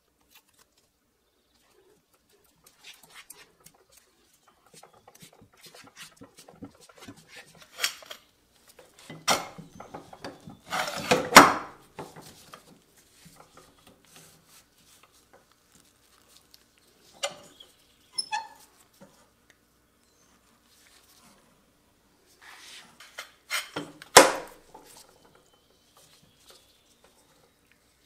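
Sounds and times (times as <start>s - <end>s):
scraping on wood: 2.4s - 8.3s, 8.9s - 16.0s.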